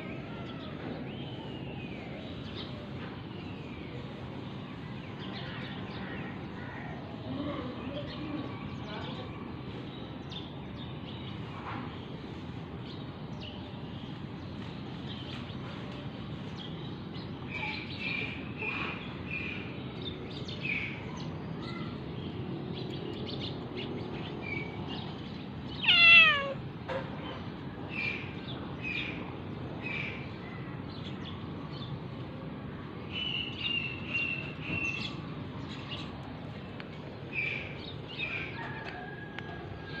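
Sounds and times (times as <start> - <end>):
cat chirping: 25.8 - 26.6
cat meowing: 25.8 - 26.6.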